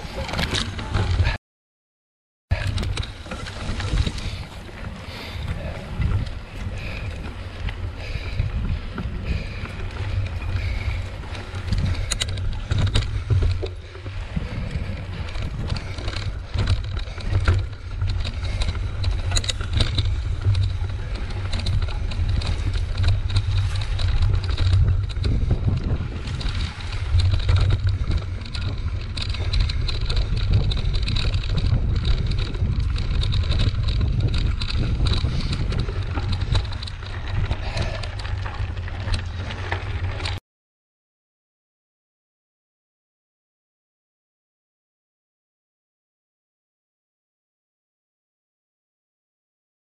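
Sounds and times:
bike rattling clicks and knocks: 0:00.0 - 0:01.4, 0:02.5 - 0:40.4
bike rolling rumble: 0:00.0 - 0:01.4, 0:02.5 - 0:40.4
wind buffeting microphone: 0:02.5 - 0:40.4.

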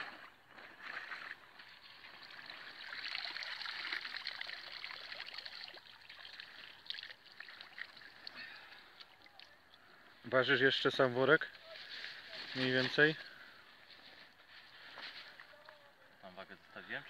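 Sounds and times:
water trickling and splashing: 0:00.0 - 0:17.0
crackly drips: 0:01.6 - 0:10.1.

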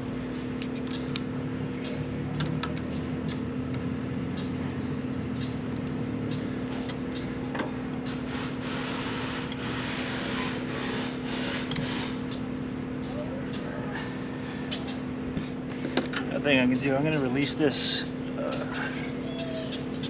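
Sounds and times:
steady low hum: 0:00.0 - 0:20.0
tool rubbing and scraping: 0:08.2 - 0:12.2.

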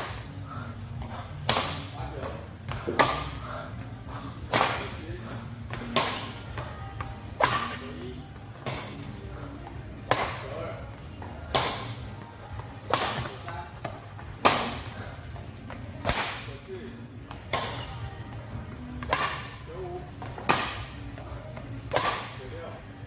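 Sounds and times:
racket hitting shuttlecock: 0:07.4 - 0:07.8, 0:12.9 - 0:13.4, 0:14.4 - 0:14.8, 0:16.0 - 0:16.5, 0:19.0 - 0:19.6, 0:20.4 - 0:20.9, 0:21.9 - 0:22.4.

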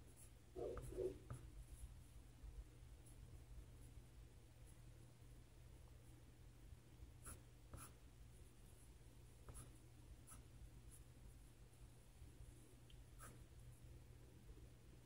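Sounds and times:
pencil scratching on paper: 0:00.1 - 0:01.9, 0:07.2 - 0:08.0.

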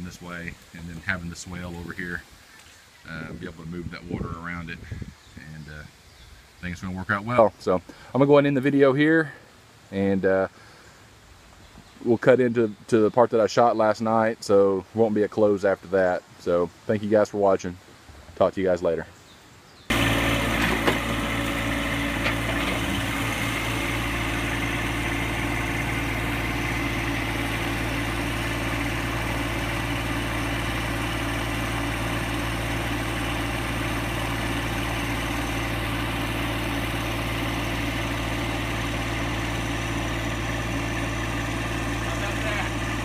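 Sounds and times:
tractor engine running: 0:19.9 - 0:43.0.

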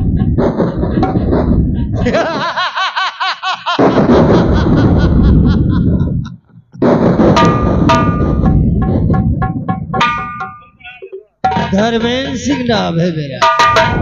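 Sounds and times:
man laughing rhythmically: 0:00.0 - 0:00.5, 0:01.8 - 0:06.6
drum-heavy music: 0:07.0 - 0:12.1, 0:13.4 - 0:14.0.

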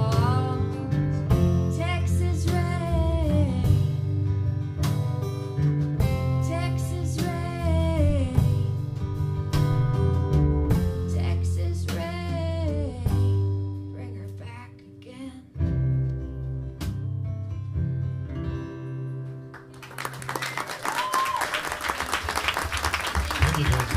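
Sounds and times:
woman singing: 0:00.0 - 0:04.0, 0:06.3 - 0:08.8, 0:10.9 - 0:15.6
acoustic guitar strumming: 0:03.8 - 0:11.3.

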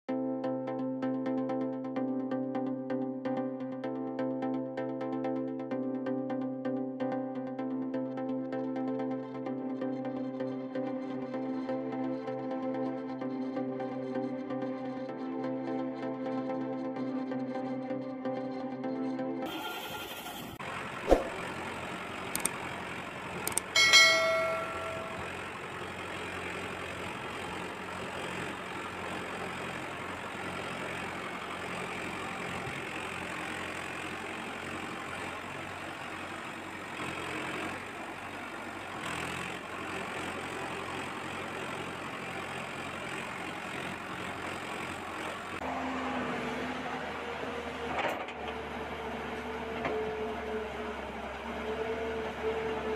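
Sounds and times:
tractor engine idling: 0:19.5 - 0:46.0
sharp clicks: 0:22.3 - 0:22.6, 0:23.5 - 0:23.7
short bell-like ring: 0:23.8 - 0:25.4.

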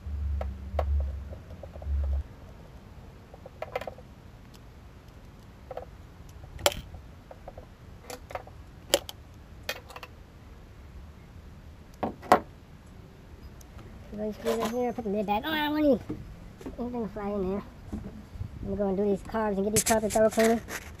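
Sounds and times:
metal parts clicking and knocking: 0:06.6 - 0:10.1.

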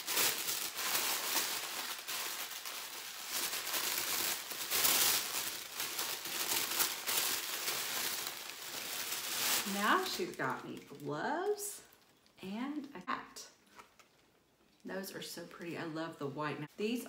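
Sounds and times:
wrapping paper crinkling: 0:00.0 - 0:12.4.

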